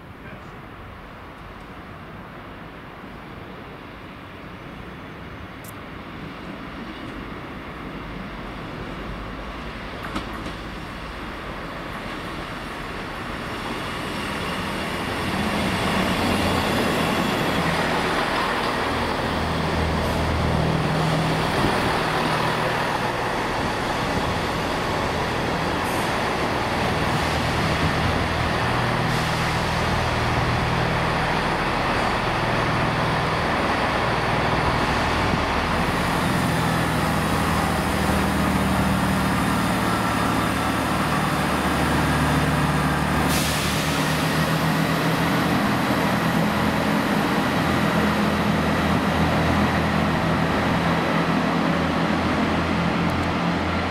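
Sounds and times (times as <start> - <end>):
diesel train engines running: 0.0 - 53.9.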